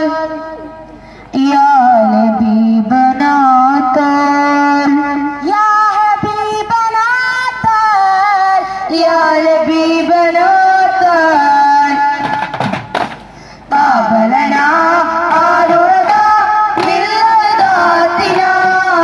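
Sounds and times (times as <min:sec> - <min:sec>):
person singing devotional song: 0:00.0 - 0:12.5, 0:13.6 - 0:19.0
frame drum strikes: 0:12.2 - 0:13.3, 0:15.2 - 0:19.0.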